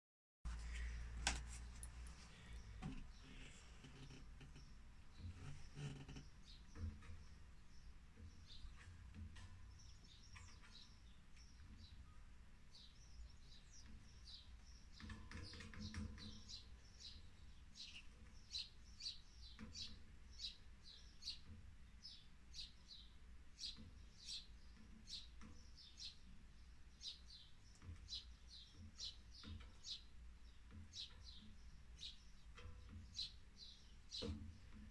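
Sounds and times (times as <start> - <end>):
soft rustle: 0.5 - 6.8
bird chirping: 0.5 - 34.9.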